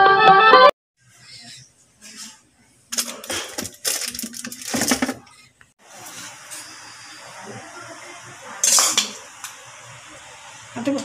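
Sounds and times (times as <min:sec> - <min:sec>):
plastic rustling and clattering: 0:02.2 - 0:05.5.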